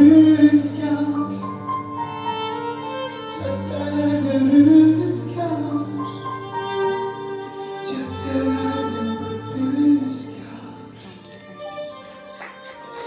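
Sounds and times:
man singing into a microphone: 0:00.0 - 0:01.8, 0:03.3 - 0:06.4, 0:07.8 - 0:11.8
violin sliding melody: 0:00.0 - 0:13.0.

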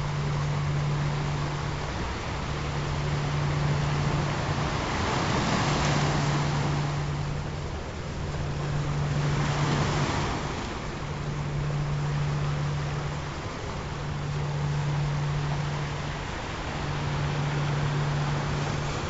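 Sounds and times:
low steady tone: 0:00.0 - 0:19.0
ocean surf: 0:00.0 - 0:19.0.

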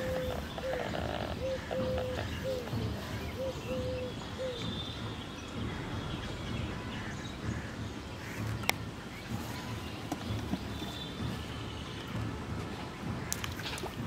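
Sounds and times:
dove cooing: 0:00.0 - 0:04.7
low outdoor background noise: 0:00.0 - 0:14.0.

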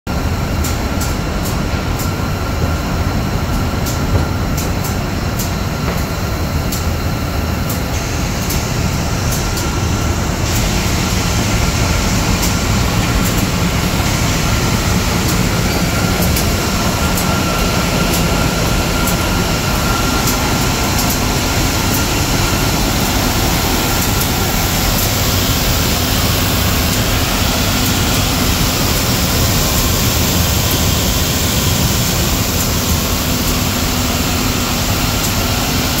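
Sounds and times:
faint machine whine: 0:00.2 - 0:36.0
sanding machine rumble: 0:07.9 - 0:36.0.

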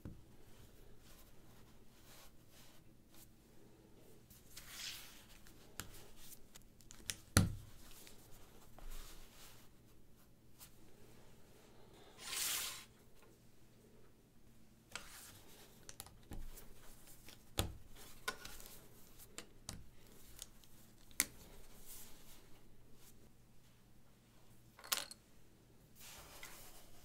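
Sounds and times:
plastic sliding rustle: 0:12.1 - 0:12.9.

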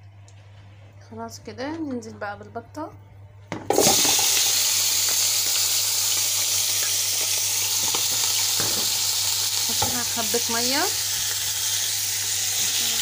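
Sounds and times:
oil sizzling: 0:03.7 - 0:13.0.

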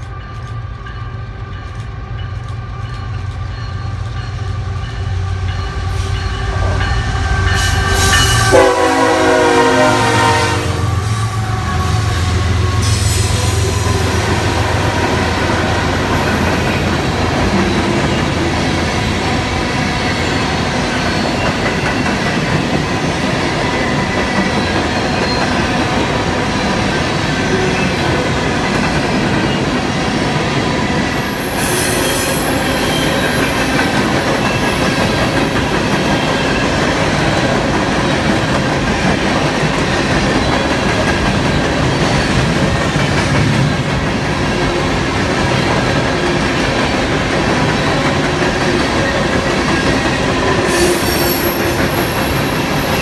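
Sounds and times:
train wheels rumbling on rail: 0:00.0 - 0:53.0
wheel squeal: 0:50.6 - 0:53.0.

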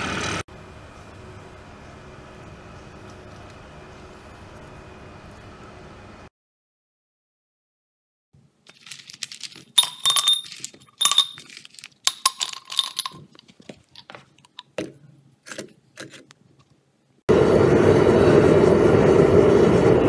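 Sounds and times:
scrap metal clinking: 0:08.7 - 0:14.8.

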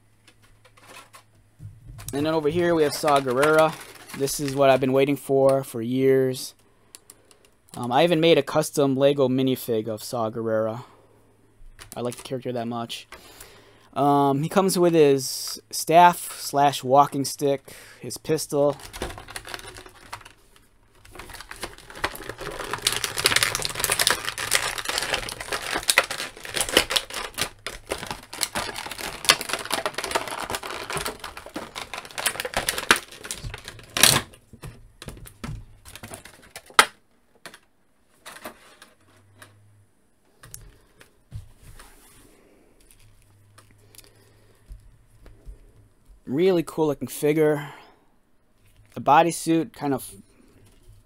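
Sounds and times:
plastic packaging crackling: 0:00.3 - 0:05.2, 0:18.3 - 0:39.5.

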